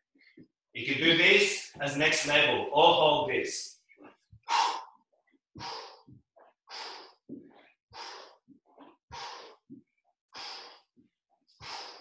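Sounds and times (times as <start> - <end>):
man breathing hard: 4.4 - 12.0.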